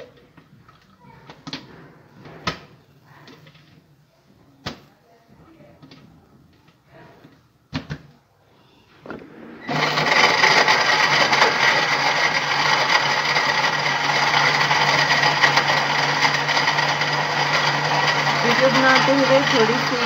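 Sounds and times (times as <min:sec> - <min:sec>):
electric blender running: 0:09.7 - 0:20.0.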